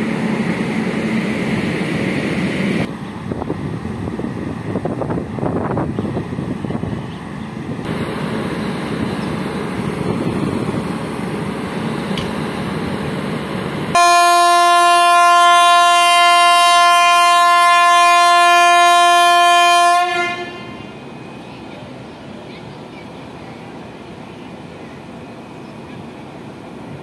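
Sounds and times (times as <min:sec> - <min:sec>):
train rumbling: 0:00.0 - 0:27.0
wind noise: 0:01.2 - 0:11.4
locomotive horn blast: 0:13.9 - 0:21.0.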